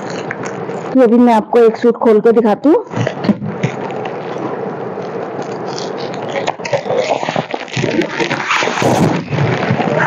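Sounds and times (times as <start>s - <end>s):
plastic packaging crinkling: 0.0s - 1.0s, 2.9s - 10.0s.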